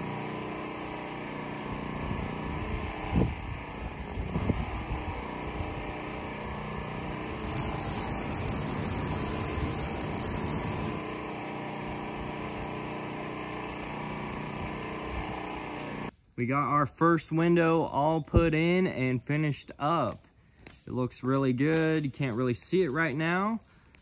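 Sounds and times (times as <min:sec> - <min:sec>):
flamethrower hissing rush: 0:00.0 - 0:16.1.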